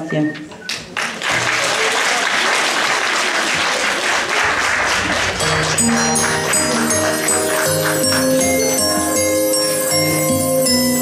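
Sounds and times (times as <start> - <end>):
audience applauding: 0.7 - 10.9
music with low notes and bells: 5.4 - 11.0.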